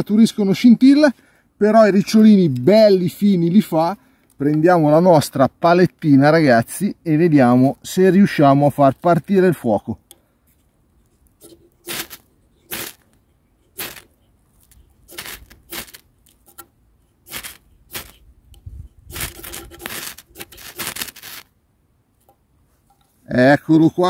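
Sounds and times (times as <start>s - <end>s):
striker scraping ferro rod: 11.3s - 21.5s.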